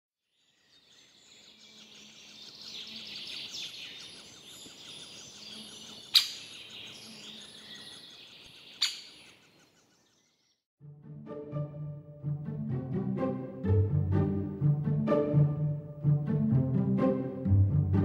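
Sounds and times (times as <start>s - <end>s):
birds chirping and calling: 0.6s - 10.6s.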